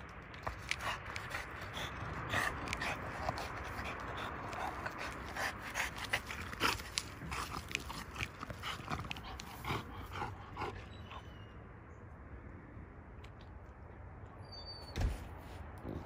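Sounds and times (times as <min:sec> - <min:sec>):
dog gnawing wood: 0:00.0 - 0:10.9
teeth scraping and crunching bark: 0:00.0 - 0:11.3
dog snuffling and panting: 0:00.3 - 0:11.3.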